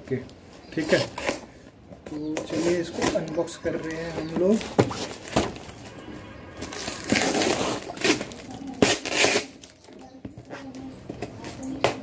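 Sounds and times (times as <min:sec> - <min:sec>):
cardboard box rustling and scraping: 0:02.5 - 0:09.5.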